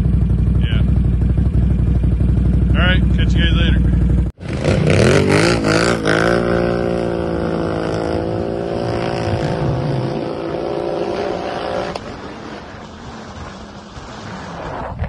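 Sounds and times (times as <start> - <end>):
vehicle engine revving: 0.0 - 14.9.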